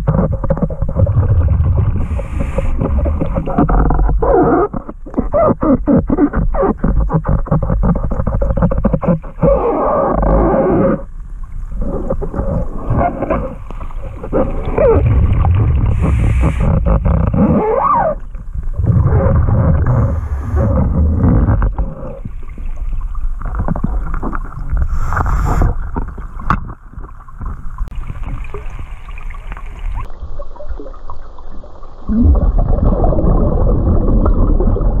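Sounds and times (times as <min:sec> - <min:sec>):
bubbling rumble of exhaled air: 0:00.0 - 0:35.0
regulator inhale hiss: 0:15.9 - 0:16.7, 0:24.9 - 0:25.8.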